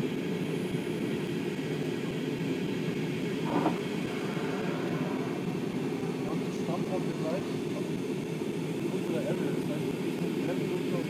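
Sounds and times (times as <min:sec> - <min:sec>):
airliner cabin engine rumble: 0:00.0 - 0:11.0.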